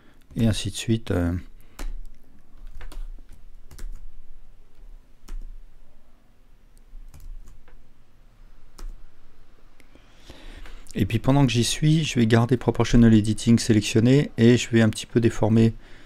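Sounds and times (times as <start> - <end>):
keyboard and mouse clicks: 1.7 - 4.1, 4.7 - 5.6, 7.1 - 7.8, 8.7 - 9.0.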